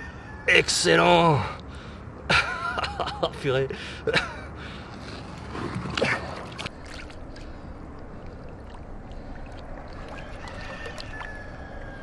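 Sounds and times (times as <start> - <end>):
shallow water lapping: 4.6 - 12.0.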